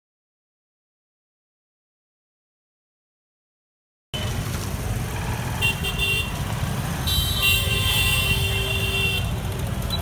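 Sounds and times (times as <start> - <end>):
street traffic engine rumble: 4.2 - 10.0.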